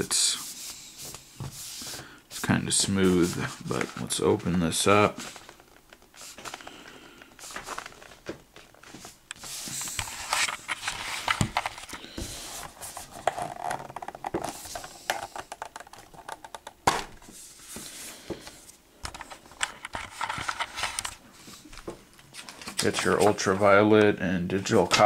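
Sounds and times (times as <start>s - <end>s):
paper rustling: 0.4s - 6.8s, 7.4s - 14.9s.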